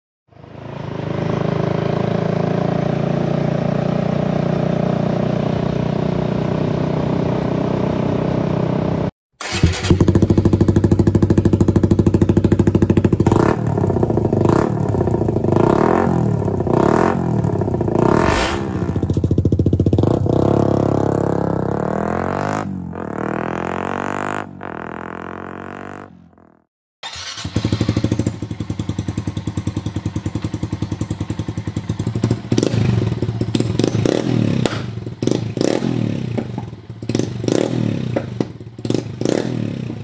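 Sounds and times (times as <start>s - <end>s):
small motorcycle engine idling: 0.3s - 18.0s, 18.9s - 21.8s, 27.0s - 40.0s
engine revving in short blips: 9.4s - 10.3s, 18.0s - 19.2s, 27.0s - 28.4s.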